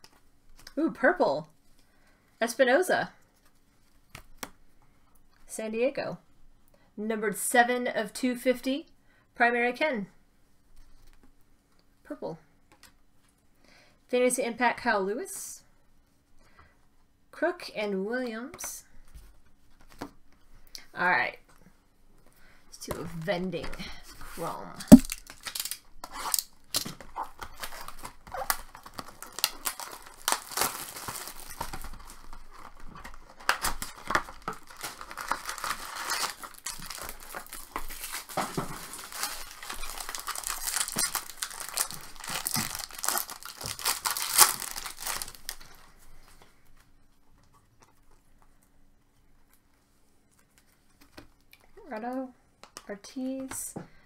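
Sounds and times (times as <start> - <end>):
foil card packs tearing and crinkling: 24.9 - 45.9.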